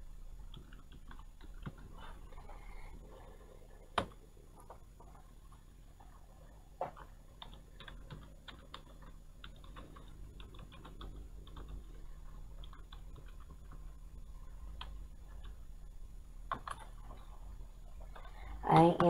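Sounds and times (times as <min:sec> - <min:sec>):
keyboard typing: 0:00.5 - 0:02.0, 0:06.9 - 0:13.9, 0:16.5 - 0:17.0.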